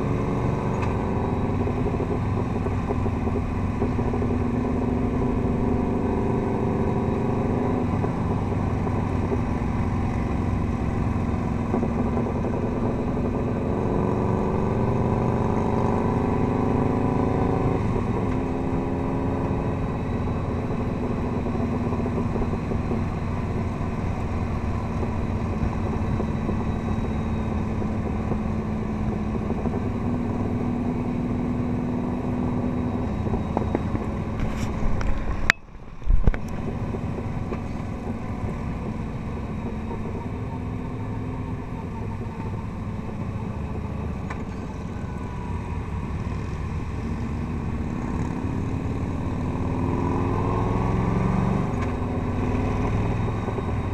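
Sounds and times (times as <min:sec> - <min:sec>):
motorcycle engine running: 0:00.0 - 0:53.9
wind and road noise: 0:00.0 - 0:53.9.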